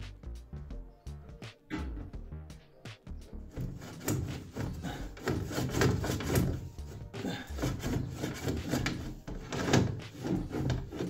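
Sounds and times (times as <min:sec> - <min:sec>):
brush scraping inside a flue: 0:03.5 - 0:11.0.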